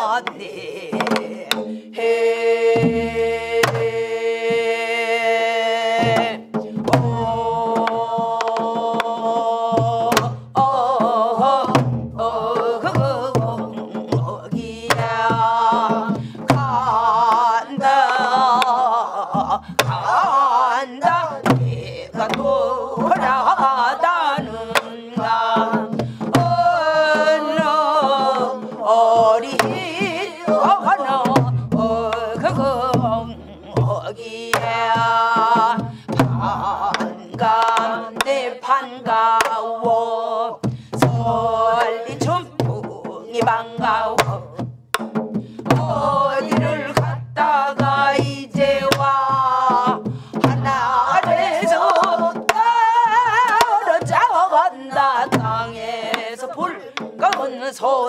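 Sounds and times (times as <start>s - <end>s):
woman singing folk song: 0.0s - 58.0s
barrel drum strokes: 40.6s - 57.5s.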